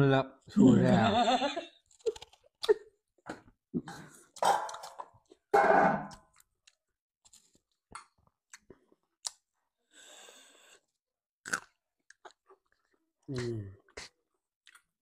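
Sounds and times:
chewing with wet mouth clicks: 0:06.3 - 0:09.5, 0:11.5 - 0:13.0, 0:14.0 - 0:14.9.

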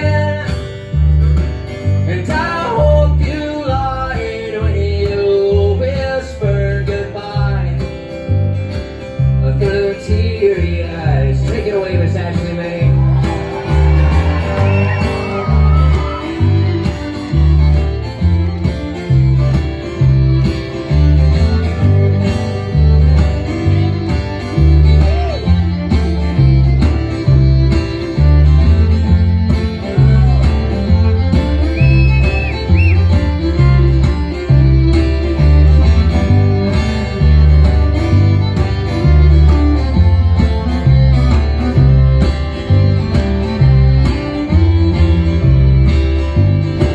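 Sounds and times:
plucked upright bass: 0:00.0 - 0:46.9
strummed acoustic guitar: 0:00.0 - 0:46.9
bowed fiddle: 0:09.8 - 0:46.9.

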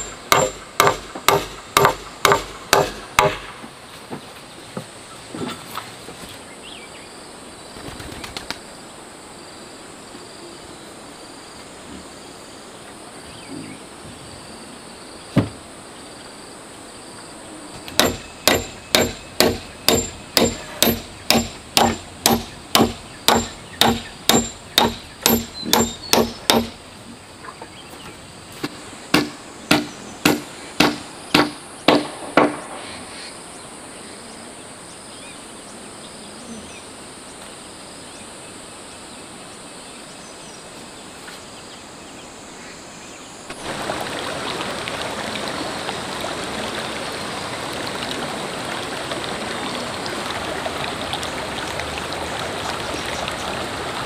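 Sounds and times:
hammering on wood: 0:00.0 - 0:03.7, 0:17.9 - 0:26.8, 0:29.1 - 0:32.7.

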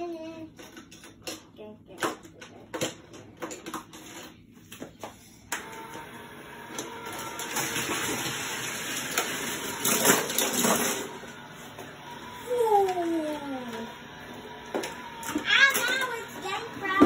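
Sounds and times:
toy elevator mechanical whir: 0:05.5 - 0:17.0
plastic toy cars clicking: 0:14.8 - 0:16.2.

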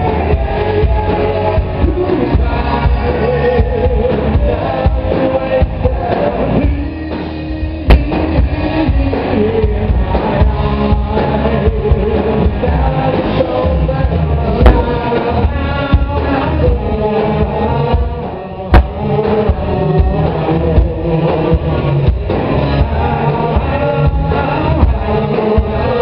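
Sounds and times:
rock band playing: 0:00.0 - 0:26.0
sharp drum hits: 0:14.6 - 0:15.1, 0:18.7 - 0:19.1.

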